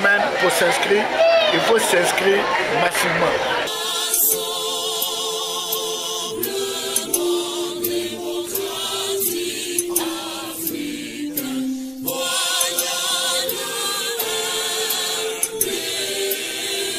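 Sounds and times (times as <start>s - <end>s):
choir singing slow melody: 2.2s - 16.9s.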